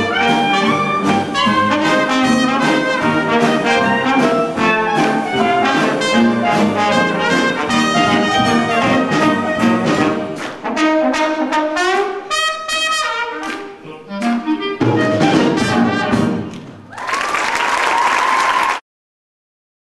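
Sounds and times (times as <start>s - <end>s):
jazz band playing: 0.0s - 16.7s
audience applauding: 16.5s - 18.8s.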